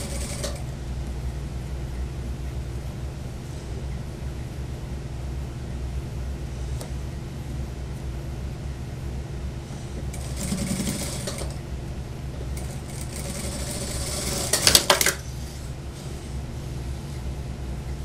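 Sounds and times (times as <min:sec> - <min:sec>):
sewing machine stitching: 0:00.0 - 0:00.6, 0:10.2 - 0:11.6, 0:12.6 - 0:15.1
steady low hum: 0:00.0 - 0:18.0.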